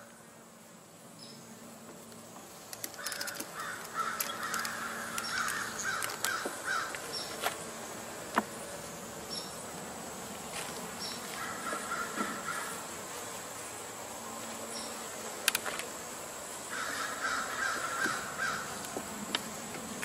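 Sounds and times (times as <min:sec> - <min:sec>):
hum of honey bees: 0:00.0 - 0:20.0
hive tool knocking on wooden frames: 0:01.8 - 0:08.8, 0:09.7 - 0:13.2, 0:17.0 - 0:20.0
crow cawing: 0:03.0 - 0:07.0, 0:11.4 - 0:12.8, 0:16.7 - 0:18.7.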